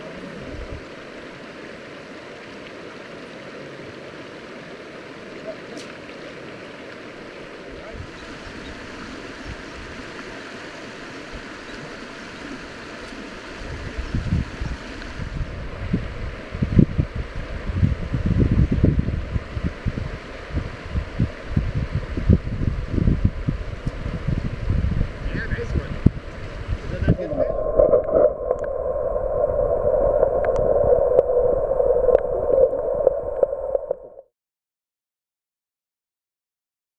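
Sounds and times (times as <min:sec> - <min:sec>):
river water rushing: 0:00.0 - 0:16.6
muffled underwater river rushing: 0:00.0 - 0:34.3.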